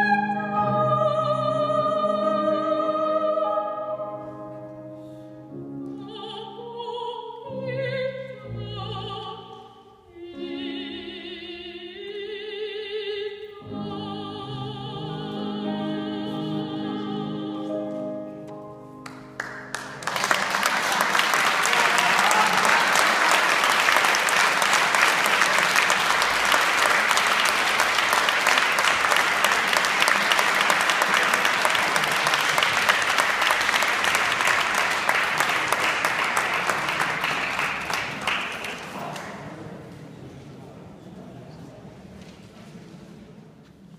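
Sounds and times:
audience applauding: 19.0s - 39.6s.

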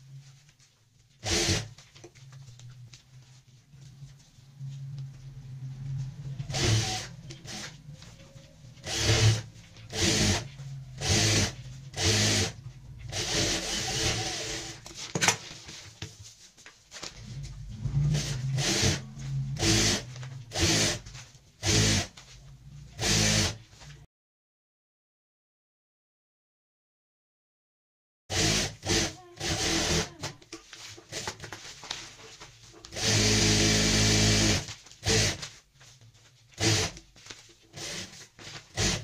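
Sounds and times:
sewing machine stitching: 1.2s - 1.8s, 6.5s - 7.8s, 8.8s - 15.4s, 17.8s - 22.1s, 23.0s - 23.6s, 28.3s - 30.3s, 32.9s - 35.4s, 37.7s - 39.0s.

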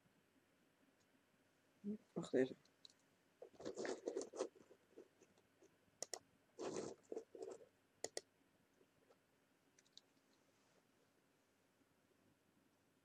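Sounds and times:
computer mouse clicks: 6.0s - 6.8s, 7.4s - 8.3s, 9.8s - 10.1s.

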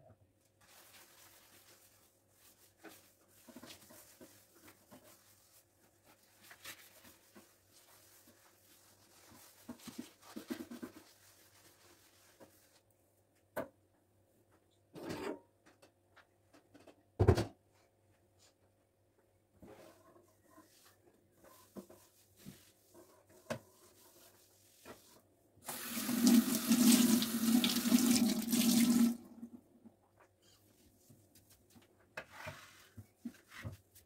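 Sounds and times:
sponge wiping countertop: 0.6s - 12.9s, 19.6s - 29.1s, 32.2s - 34.0s.

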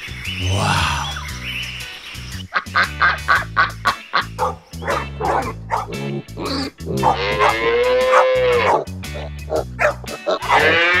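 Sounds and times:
children's background music: 0.2s - 11.0s
dog barking: 4.4s - 6.0s, 6.9s - 10.8s
cow mooing: 6.5s - 8.8s, 10.4s - 11.0s.

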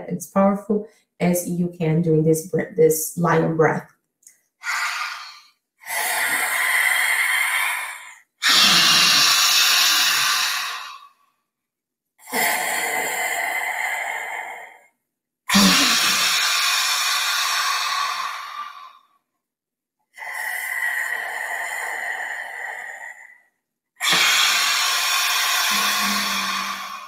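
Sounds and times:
woman breathing forcefully: 4.6s - 11.2s, 12.2s - 14.9s, 15.5s - 18.9s, 20.2s - 27.0s.

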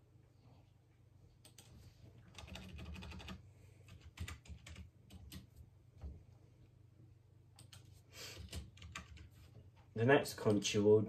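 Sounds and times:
typing on computer keyboard: 1.4s - 5.5s, 7.6s - 9.4s.

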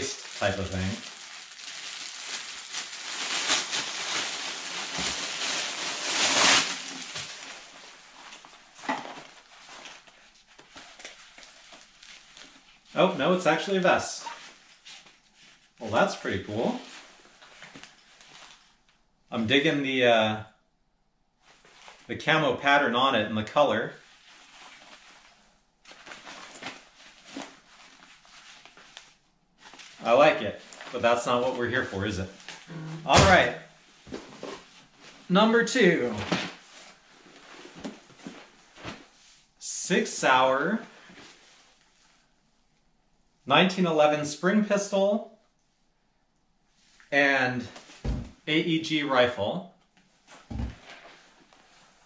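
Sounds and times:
plastic bag crinkling: 0.0s - 12.7s
fabric and straps rustling: 0.0s - 13.0s, 14.2s - 15.8s, 16.8s - 18.9s, 24.0s - 31.1s, 32.3s - 35.3s, 36.1s - 39.6s, 49.9s - 52.0s.

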